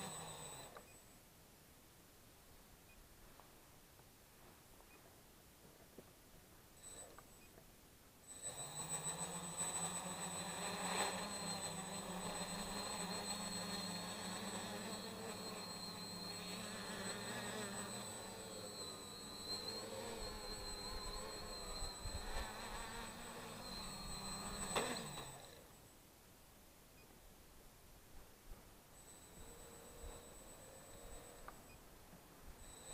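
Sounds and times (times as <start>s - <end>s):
quadcopter motors buzzing: 0.0s - 1.2s, 6.7s - 7.6s, 8.2s - 26.0s, 28.9s - 31.9s, 32.5s - 32.9s.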